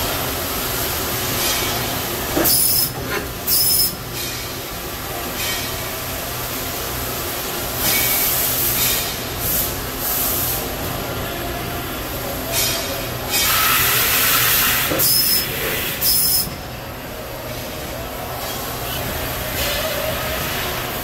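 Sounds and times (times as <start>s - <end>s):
air hiss bursts: 12.6s - 16.6s.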